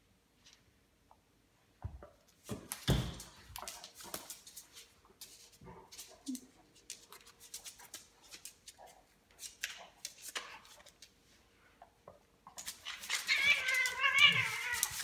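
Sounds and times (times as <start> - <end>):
animals scuffling: 12.6 - 15.0.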